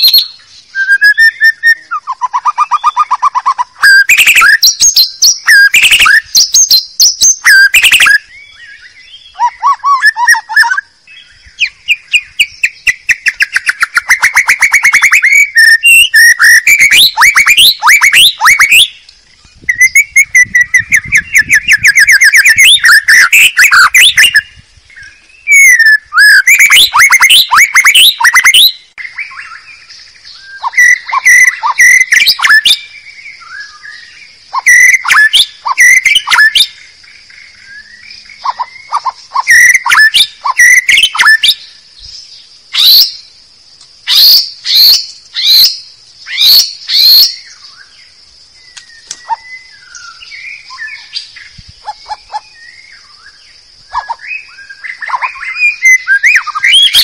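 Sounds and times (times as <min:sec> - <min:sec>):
bird singing chirps and whistles: 0:00.0 - 0:43.4, 0:44.0 - 0:57.0
steady high-pitched hiss: 0:00.0 - 0:57.0.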